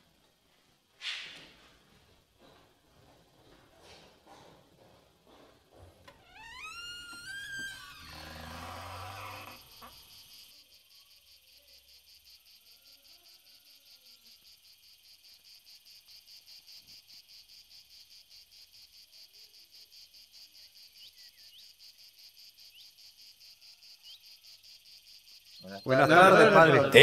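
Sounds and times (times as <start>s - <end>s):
insects chirping: 6.1s - 27.0s.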